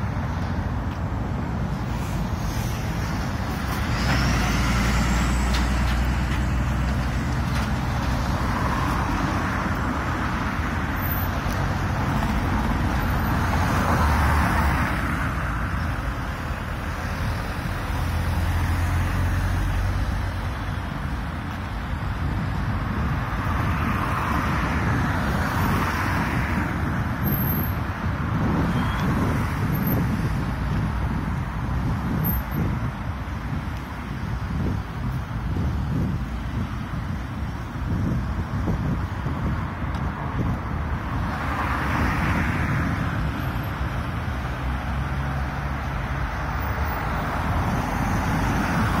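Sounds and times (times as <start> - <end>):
cars passing: 0.0 - 49.0
road traffic: 0.0 - 49.0.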